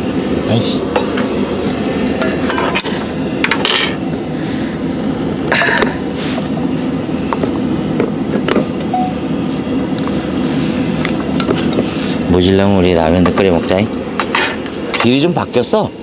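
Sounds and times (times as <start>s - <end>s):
steady low hum: 0.0s - 16.0s
dishes and cutlery clinking: 2.2s - 4.0s.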